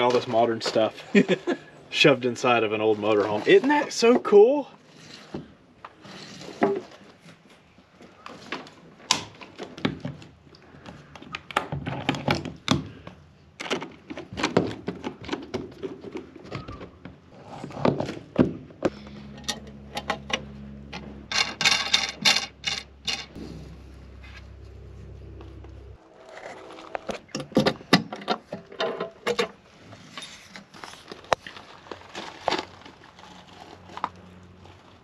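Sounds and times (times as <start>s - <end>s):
steady low hum: 18.8s - 27.3s
sharp rattling: 21.2s - 26.0s.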